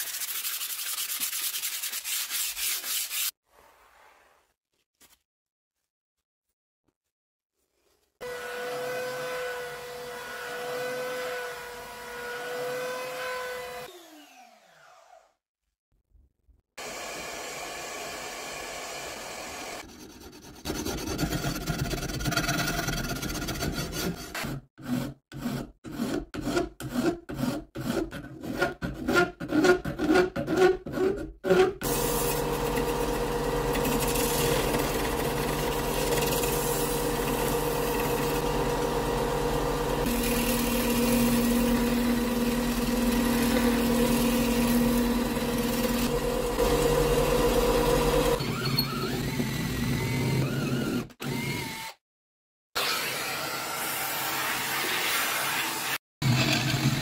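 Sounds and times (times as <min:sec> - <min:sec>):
hand rasp filing wood: 0:00.0 - 0:03.4, 0:19.8 - 0:32.5
small power tool running: 0:13.5 - 0:15.3, 0:31.8 - 0:52.0.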